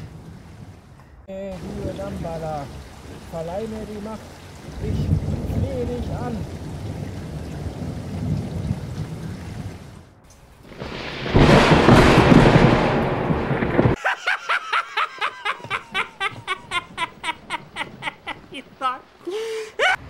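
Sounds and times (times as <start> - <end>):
rain: 0.0 - 14.0, 14.8 - 20.0
thunderclap: 4.5 - 14.0.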